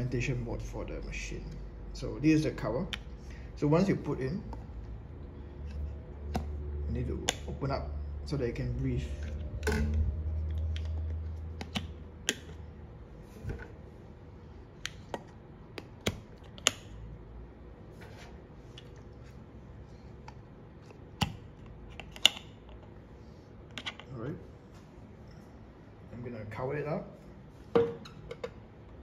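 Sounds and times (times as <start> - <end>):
plastic lids clicking on cups: 9.2 - 12.6.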